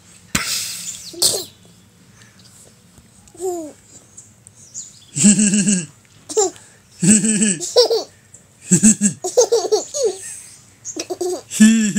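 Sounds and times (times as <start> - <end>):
small child giggling: 3.4 - 3.8, 5.2 - 8.1, 8.7 - 11.9
adult laughing: 5.2 - 11.9.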